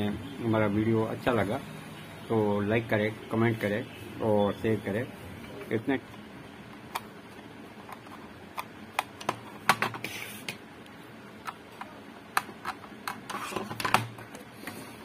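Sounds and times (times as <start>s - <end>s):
plastic case clicks and knocks: 12.6s - 14.2s.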